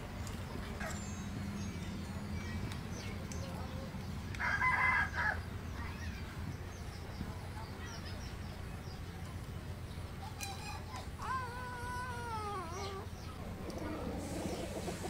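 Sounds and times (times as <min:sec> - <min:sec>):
small birds chirping: 0:00.1 - 0:15.0
rooster crowing: 0:04.4 - 0:05.4.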